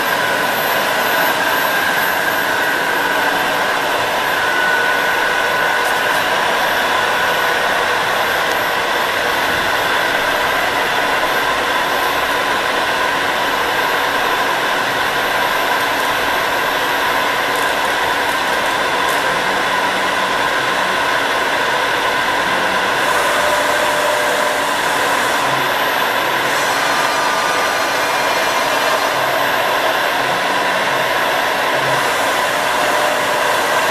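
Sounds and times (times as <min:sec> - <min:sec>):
milling machine whirring: 0:00.0 - 0:33.9.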